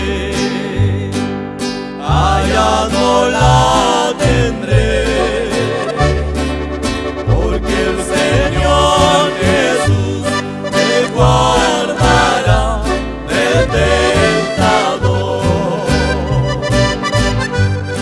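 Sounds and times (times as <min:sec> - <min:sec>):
men singing in harmony: 0:00.0 - 0:01.3, 0:02.0 - 0:06.4, 0:07.2 - 0:17.5
instrumental backing with walking bass: 0:00.0 - 0:18.0.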